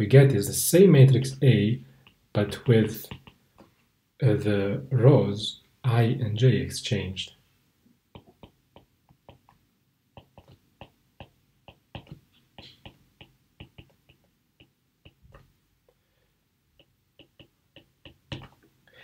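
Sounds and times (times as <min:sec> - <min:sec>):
stylus tapping on glass screen: 0:03.0 - 0:03.7, 0:08.2 - 0:09.6, 0:10.2 - 0:15.5, 0:16.8 - 0:18.7.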